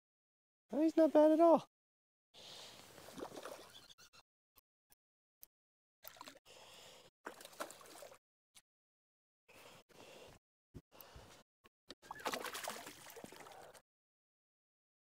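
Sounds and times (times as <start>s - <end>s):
water gurgling and sloshing: 2.8s - 3.9s, 7.3s - 8.2s, 12.0s - 13.8s.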